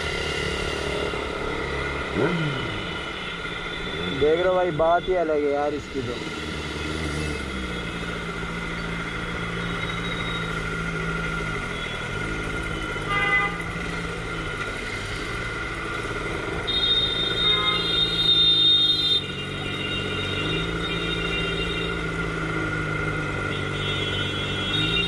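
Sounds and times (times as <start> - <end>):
motorcycle engine running: 0.0 - 4.4, 5.6 - 25.0
motorcycle horn: 12.9 - 13.9, 16.6 - 22.1, 23.4 - 25.0.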